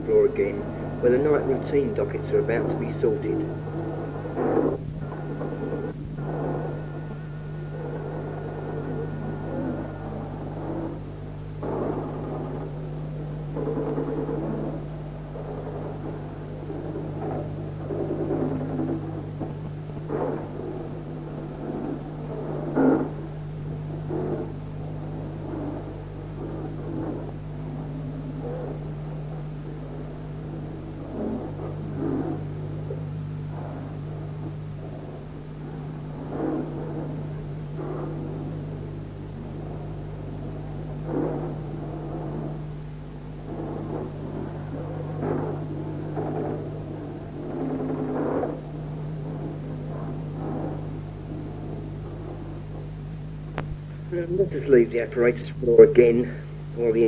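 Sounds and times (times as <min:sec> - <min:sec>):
low electrical hum: 0:00.0 - 0:57.0.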